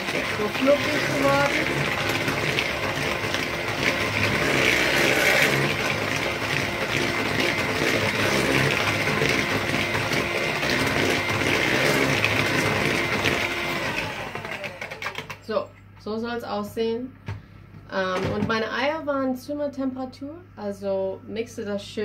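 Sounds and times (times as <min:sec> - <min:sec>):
electric hand mixer whining: 0:00.0 - 0:15.4.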